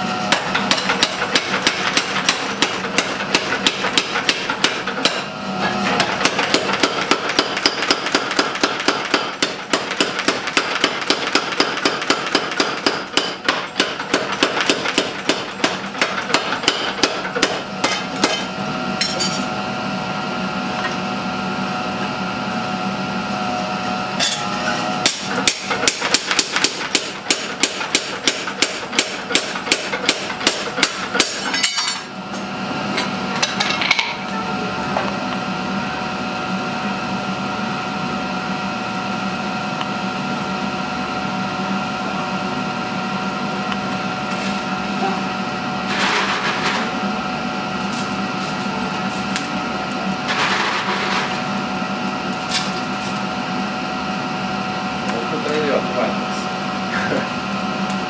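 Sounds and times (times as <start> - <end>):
machine running hum: 0.0 - 58.0
power hammer pounding steel: 0.3 - 5.3, 5.9 - 18.5, 25.0 - 32.0.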